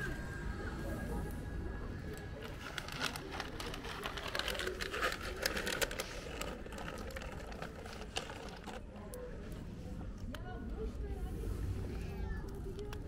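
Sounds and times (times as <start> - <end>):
cats crunching dry kibble: 2.1 - 9.2.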